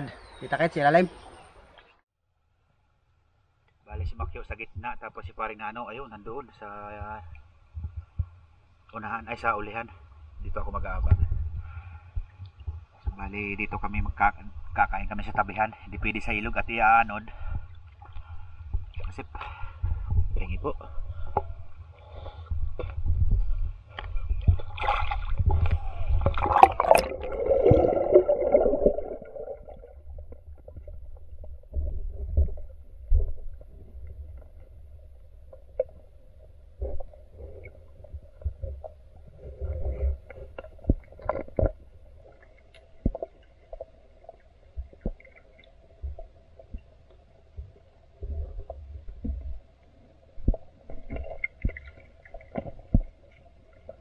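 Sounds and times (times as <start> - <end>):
river heard underwater: 6.0 - 54.0
water splashing and churning: 23.8 - 54.0
underwater clicks and knocks: 23.9 - 34.8, 35.4 - 36.2, 36.8 - 49.7, 50.4 - 54.0.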